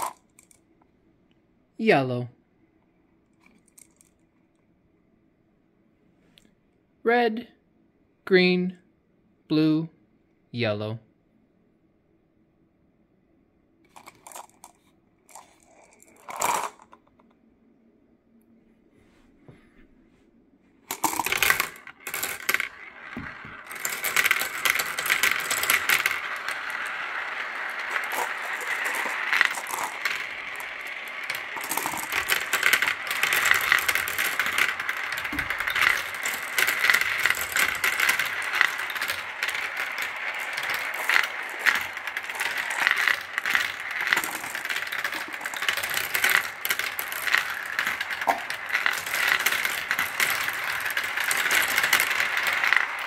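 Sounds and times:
glass marbles clattering down tracks: 0.0s - 0.6s, 3.4s - 4.1s, 13.9s - 17.0s, 20.9s - 53.0s.

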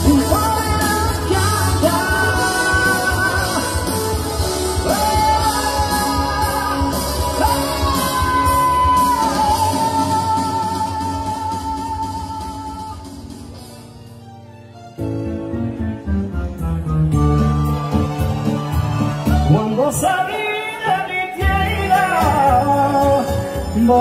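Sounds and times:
man singing into microphone: 0.0s - 13.3s, 19.4s - 24.0s
backing music with drum beat: 0.0s - 14.2s, 16.5s - 24.0s.

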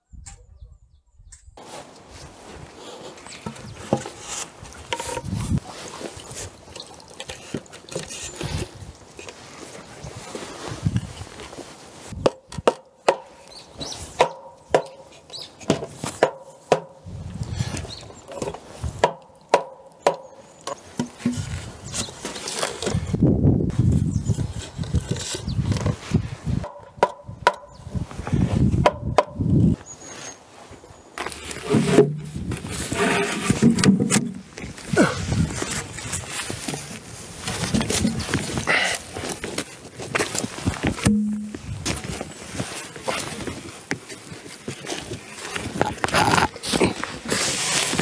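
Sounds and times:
scuffing and handling noise: 1.6s - 12.2s, 29.8s - 48.0s
wooden mallet knocking timber: 12.2s - 13.4s, 14.2s - 15.1s, 15.7s - 17.0s, 19.0s - 20.3s, 26.6s - 27.7s, 28.8s - 29.4s, 41.0s - 41.6s.

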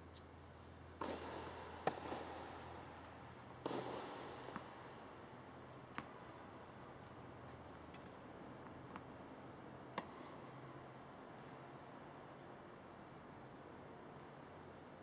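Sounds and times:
tennis racquet hitting ball: 1.0s - 4.7s
ball bouncing on hard court: 1.0s - 5.0s.

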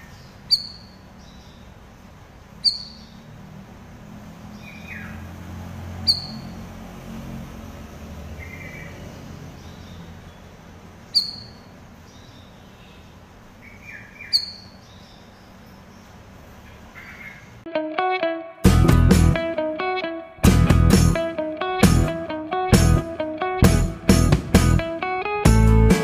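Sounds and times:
bird sharp high chirps: 0.0s - 1.7s, 2.6s - 3.3s, 4.5s - 5.2s, 6.0s - 6.6s, 8.4s - 16.1s
soft low bird chirping: 0.0s - 3.4s, 6.0s - 6.6s, 8.4s - 17.6s.

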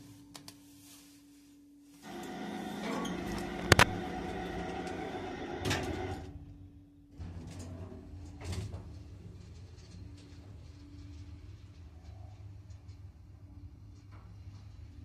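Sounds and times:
lift doors sliding shut: 2.0s - 6.4s
lift drive low hum: 2.0s - 6.8s.

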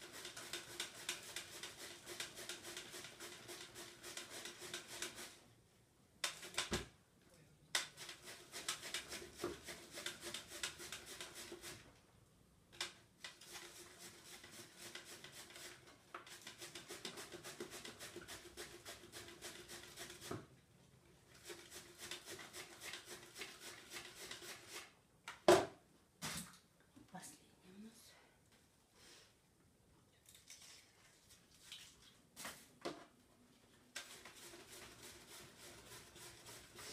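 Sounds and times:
cabbage scraping on shredder: 34.0s - 36.9s.

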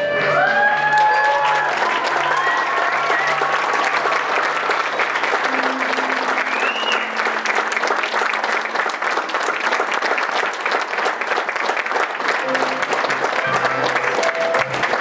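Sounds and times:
background music: 0.0s - 9.1s, 12.3s - 15.0s
audience applauding: 0.0s - 15.0s.

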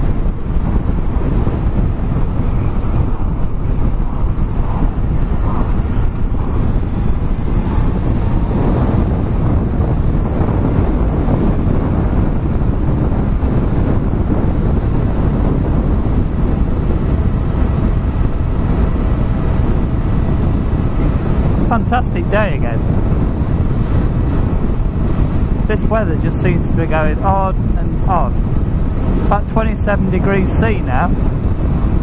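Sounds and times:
wind buffeting microphone: 0.0s - 32.0s.

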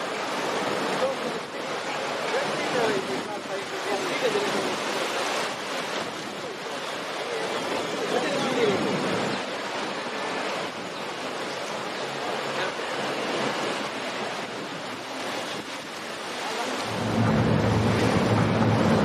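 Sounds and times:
water around a boat: 0.0s - 19.0s
low boat engine hum: 8.8s - 19.0s
wind on microphone: 12.8s - 19.0s.

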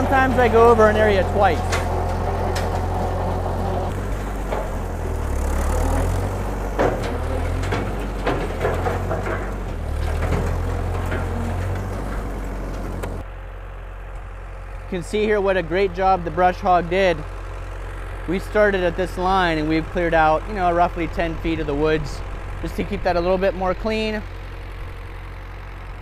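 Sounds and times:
tractor engine running: 0.0s - 26.0s.

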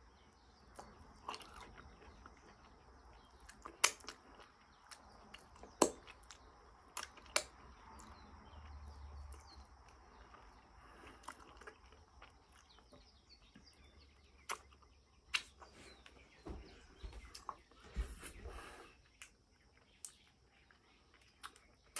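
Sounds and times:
chewing and lip smacks: 0.6s - 13.8s, 14.4s - 16.1s, 17.3s - 17.7s, 19.1s - 21.9s.

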